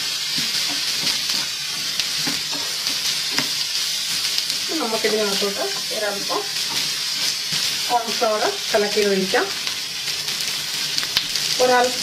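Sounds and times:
food sizzling in a frying pan: 0.0 - 12.0
wooden spatula scraping a pan: 0.3 - 8.9.

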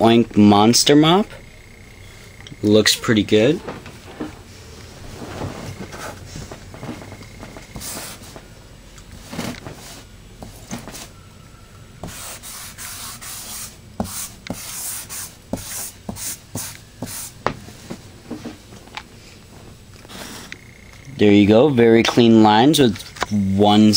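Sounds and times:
marker rubbing on whiteboard: 7.8 - 8.4, 12.0 - 17.4.

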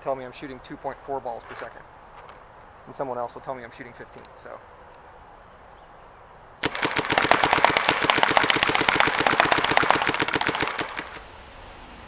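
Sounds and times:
paintball marker firing rapidly: 6.6 - 11.2.

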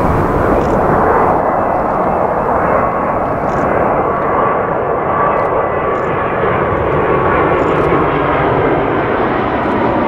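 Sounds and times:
thin engine whine: 0.0 - 6.0
jet airliner engines rushing: 0.0 - 10.0.

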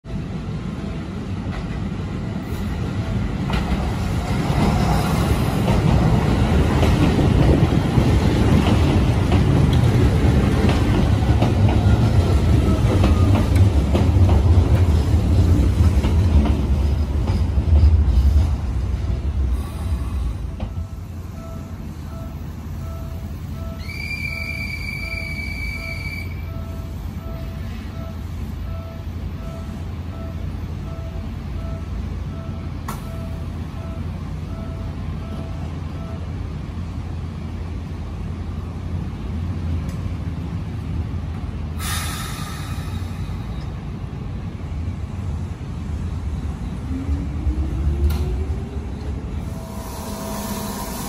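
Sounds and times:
electric train rumble: 0.1 - 51.0
train wheels clicking: 3.4 - 18.8
faint beep: 20.7 - 36.3.

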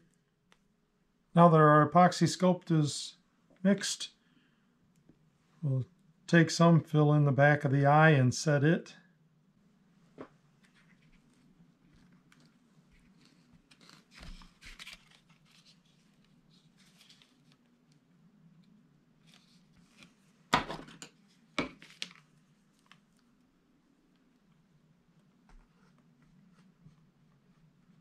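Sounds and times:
soft rustles and clicks: 10.0 - 28.0.

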